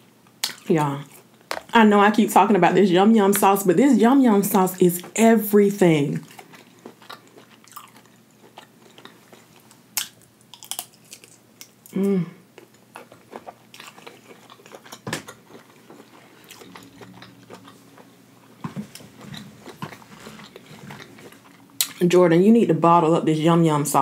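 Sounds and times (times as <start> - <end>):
chewing with wet mouth clicks: 6.2 - 11.8, 12.6 - 18.1
person humming: 11.9 - 12.4.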